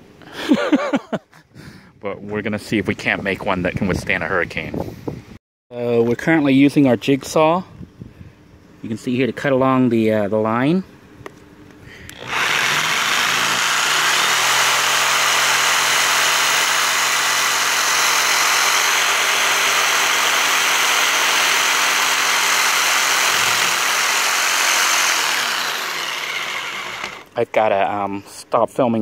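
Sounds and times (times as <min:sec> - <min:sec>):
jigsaw cutting wood: 0:12.1 - 0:27.3.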